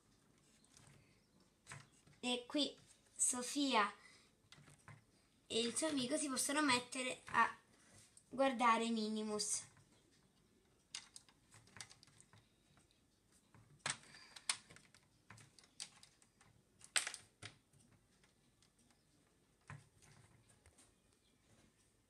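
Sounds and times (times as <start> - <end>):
plastic toy parts clicking: 10.8 - 13.0, 13.6 - 20.4.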